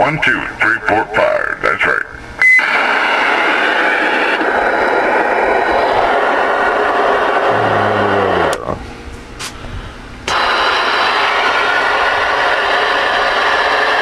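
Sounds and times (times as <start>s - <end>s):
radio static hiss: 0.0s - 4.8s, 7.3s - 8.9s
low falling tone: 7.4s - 8.8s.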